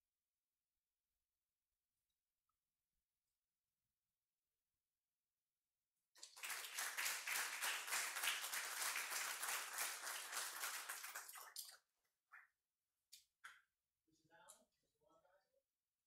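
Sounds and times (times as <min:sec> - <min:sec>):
audience applauding: 0:06.2 - 0:11.7.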